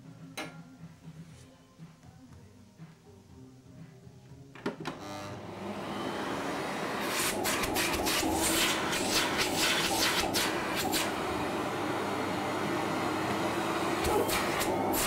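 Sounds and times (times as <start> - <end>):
vacuum cleaner motor humming: 4.9 - 15.0
air rushing through hose: 7.0 - 11.3.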